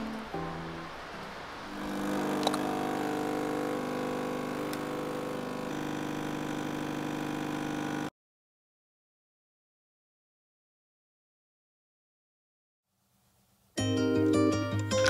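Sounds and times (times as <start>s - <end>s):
espresso machine pump humming: 0.9s - 8.1s.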